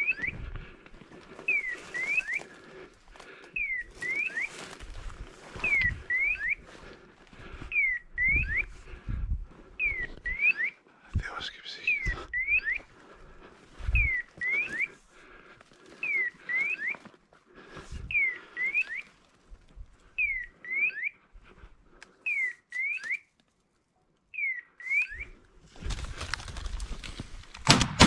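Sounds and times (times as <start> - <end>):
rustling and footsteps in brush: 0.0 - 27.7.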